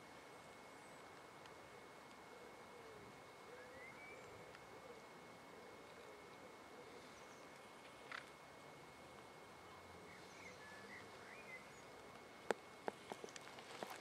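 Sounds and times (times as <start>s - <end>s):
faint outdoor hiss: 0.0s - 14.0s
faint bird chirps: 0.2s - 8.3s, 9.6s - 12.1s.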